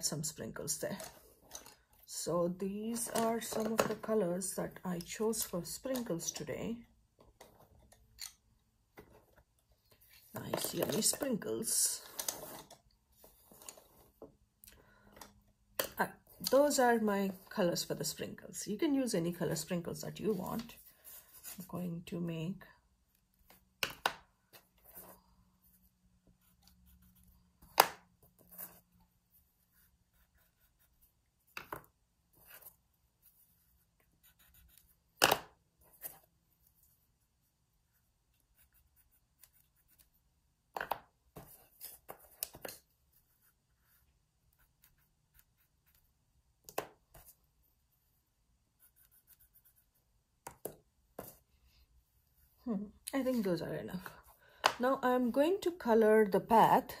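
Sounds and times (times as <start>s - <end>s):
pencil scratching on paper: 26.4s - 27.4s, 28.4s - 31.2s, 32.3s - 35.0s, 37.8s - 40.2s, 43.1s - 46.2s, 48.0s - 50.1s
colored pencils tapping on table: 40.7s - 42.8s.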